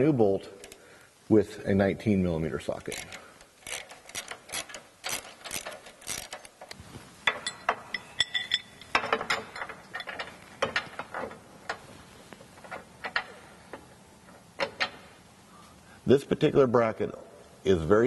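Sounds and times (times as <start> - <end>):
hand ratchet clicking: 2.8 - 10.9
metallic clinks of bolt and socket: 2.8 - 11.8.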